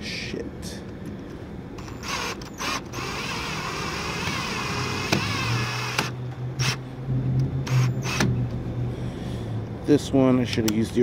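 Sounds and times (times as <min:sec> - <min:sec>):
cordless drill whining: 0:01.8 - 0:06.8, 0:07.7 - 0:08.3.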